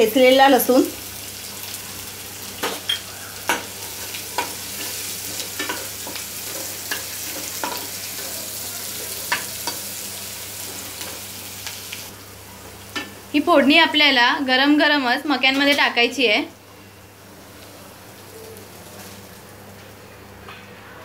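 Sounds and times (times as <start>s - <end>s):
garlic sizzling in hot oil: 0.0s - 16.4s.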